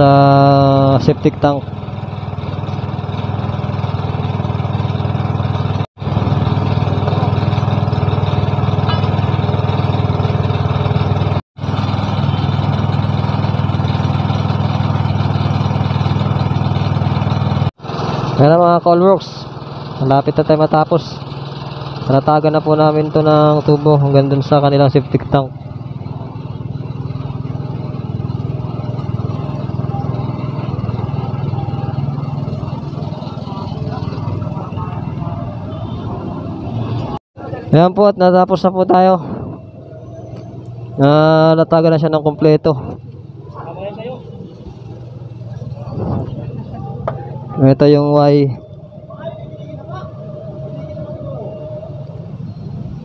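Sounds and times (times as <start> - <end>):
small engine running steadily: 0.0 - 53.0.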